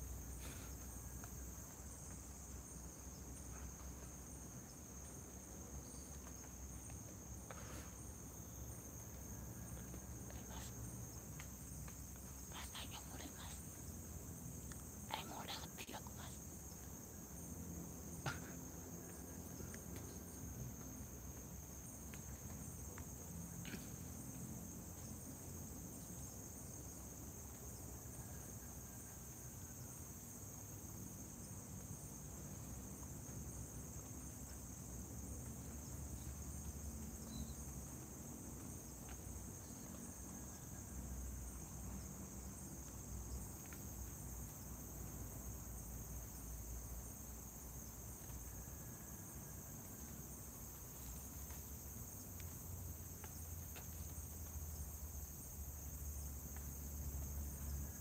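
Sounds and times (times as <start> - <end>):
crickets trilling: 0.0 - 58.0.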